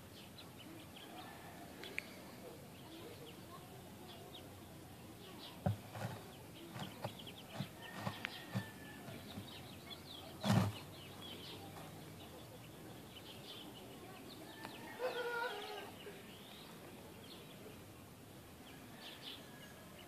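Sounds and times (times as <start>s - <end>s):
birds chirping: 0.0s - 20.0s.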